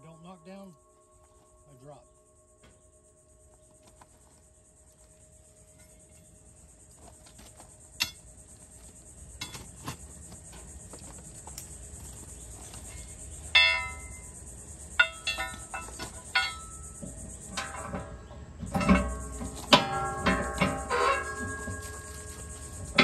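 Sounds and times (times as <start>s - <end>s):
steady high hiss: 0.0s - 23.0s
metal clanks ringing: 7.0s - 8.4s, 9.3s - 10.0s, 12.7s - 23.0s.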